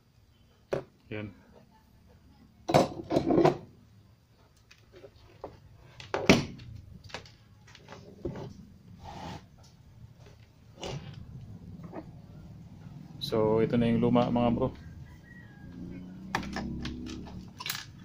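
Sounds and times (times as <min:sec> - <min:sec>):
knocks and scrapes of handling: 0:04.4 - 0:12.2.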